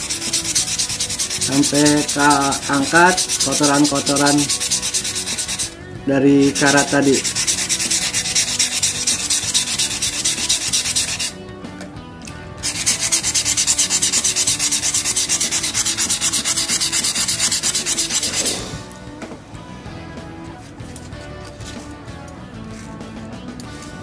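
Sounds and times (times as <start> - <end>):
sandpaper rasping on metal blade: 0.0 - 5.8, 6.4 - 11.4, 12.6 - 18.8.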